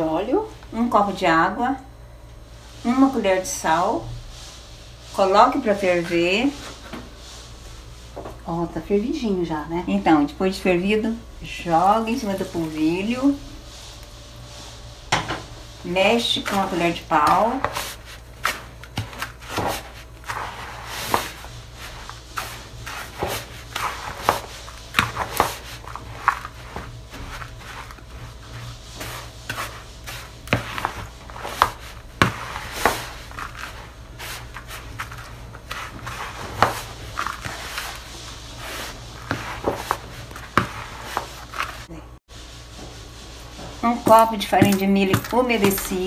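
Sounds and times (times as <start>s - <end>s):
wooden spoon scraping a bowl: 11.7s - 41.9s, 42.7s - 46.0s.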